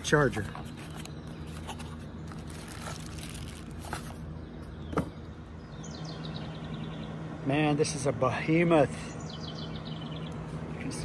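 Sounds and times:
steady low hum: 0:00.0 - 0:11.0
cardboard rustling: 0:00.4 - 0:04.2.

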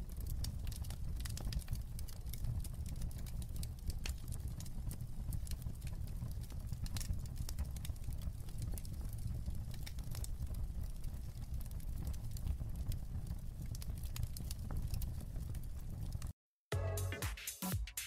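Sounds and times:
fire crackling in a fireplace: 0:00.0 - 0:16.4.

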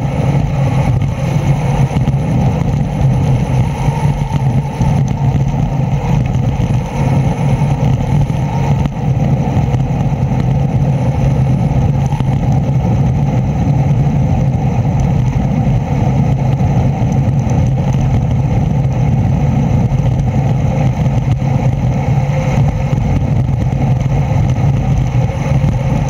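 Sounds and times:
road and wind noise: 0:00.0 - 0:26.0
vehicle low hum: 0:00.0 - 0:26.0.

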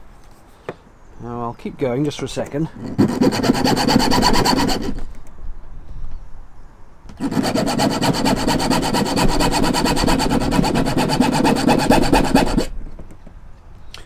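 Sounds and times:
hacksaw sawing: 0:02.8 - 0:05.0, 0:07.2 - 0:12.7.

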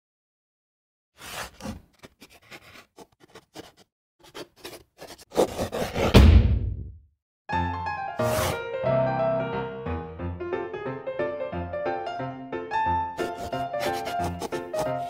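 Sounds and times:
chalk scratching on a chalkboard: 0:01.2 - 0:06.0, 0:08.2 - 0:08.6, 0:13.2 - 0:15.0.

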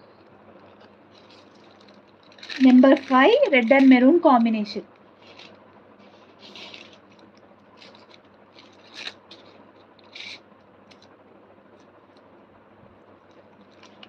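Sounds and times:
paper stickers scraping and rustling: 0:00.6 - 0:04.6, 0:05.2 - 0:11.1.

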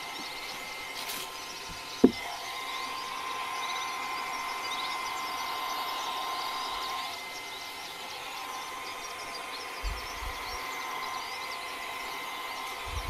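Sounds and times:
blow-dryer humming with whine: 0:00.0 - 0:13.0
hard object knocking on table: 0:02.0 - 0:02.2.

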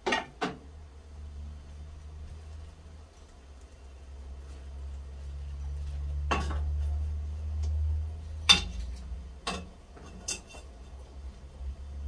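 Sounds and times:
metal tongs clinking on pot: 0:09.5 - 0:10.7.

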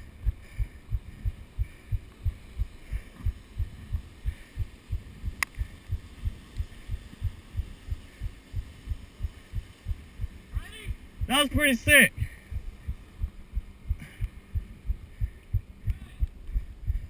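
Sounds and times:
low even thumping: 0:12.2 - 0:17.0.

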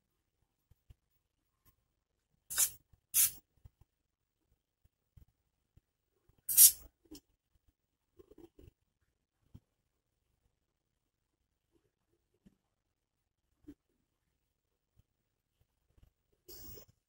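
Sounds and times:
aerosol spray hissing bursts: 0:02.5 - 0:03.4, 0:06.5 - 0:06.8.

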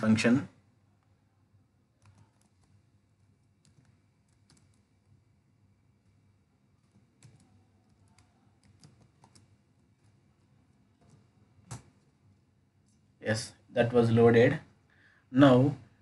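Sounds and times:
low room hum: 0:00.0 - 0:16.0
faint keyboard typing: 0:01.0 - 0:13.1.

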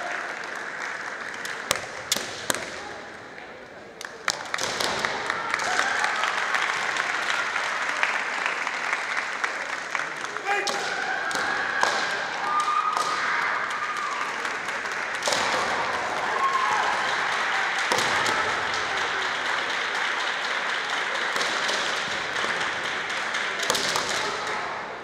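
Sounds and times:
fencers' kiai shouts: 0:10.4 - 0:13.4.

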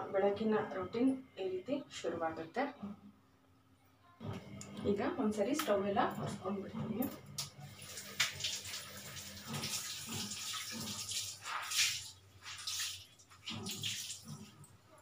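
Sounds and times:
tap water splashing into sink: 0:07.4 - 0:14.4.

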